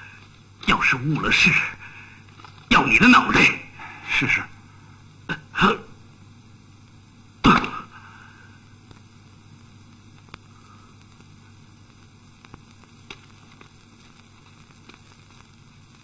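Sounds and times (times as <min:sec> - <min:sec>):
film soundtrack hiss and hum: 0:00.0 - 0:16.0
faint ticks: 0:09.9 - 0:16.0.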